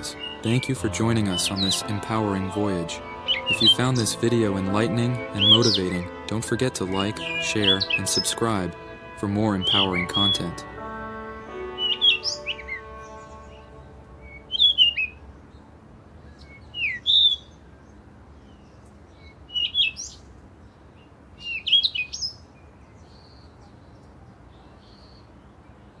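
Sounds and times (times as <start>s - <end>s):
music track: 0.0s - 15.3s
songbird chirping: 0.0s - 26.0s.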